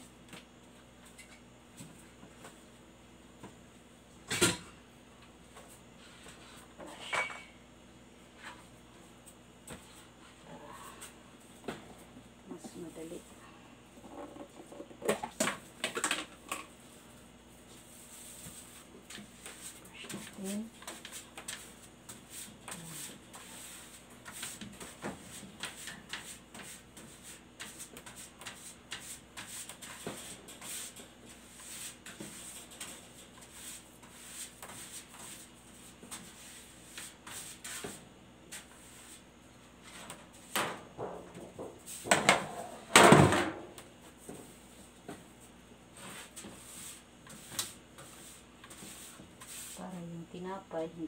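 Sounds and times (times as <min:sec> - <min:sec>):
pastry brush on metal sheet: 0:17.7 - 0:39.2, 0:46.0 - 0:50.7.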